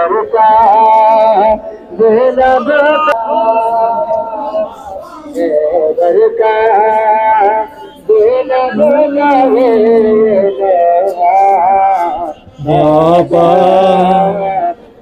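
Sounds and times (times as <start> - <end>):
man chanting a lament: 0.0 - 15.0.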